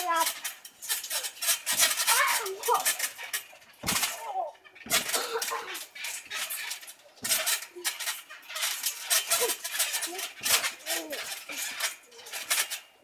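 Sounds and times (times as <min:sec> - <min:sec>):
metal springs rattling: 0:00.0 - 0:13.0
thuds of trampoline landings: 0:00.1 - 0:12.9
children's cries and voices: 0:02.0 - 0:03.0.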